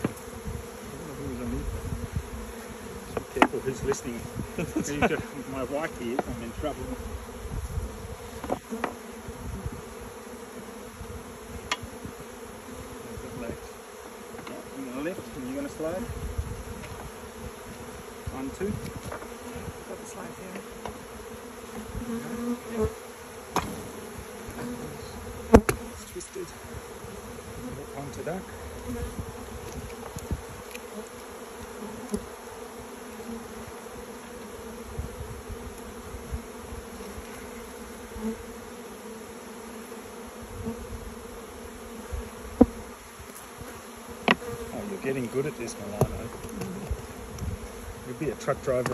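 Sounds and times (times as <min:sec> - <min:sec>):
honeybees buzzing: 0:00.0 - 0:48.9.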